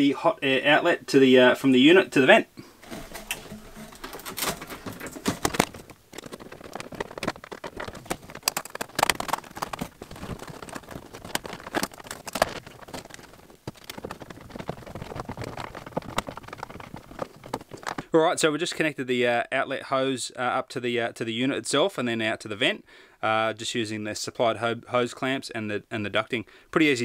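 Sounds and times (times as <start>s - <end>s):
hose rustling and scraping: 2.6s - 18.0s.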